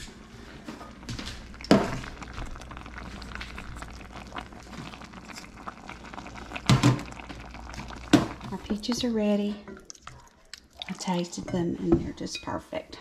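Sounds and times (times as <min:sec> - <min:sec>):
pot bubbling: 0:00.0 - 0:12.9
stirring clicks: 0:01.1 - 0:11.2.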